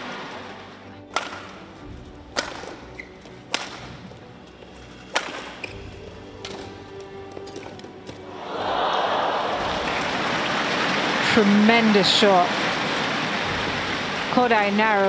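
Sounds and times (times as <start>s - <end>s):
racket smacking shuttlecock: 1.1s - 1.6s, 2.3s - 4.1s, 5.0s - 6.8s.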